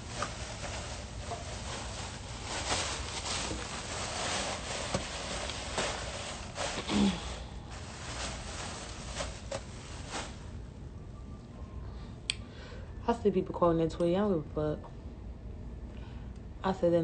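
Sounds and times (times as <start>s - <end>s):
plastic gloves and bag crinkling: 0.0s - 10.7s.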